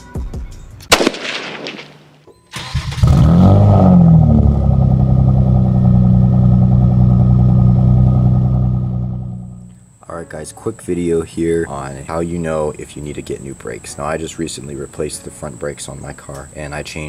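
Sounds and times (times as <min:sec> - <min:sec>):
vehicle engine starting and idling: 0:02.5 - 0:09.8.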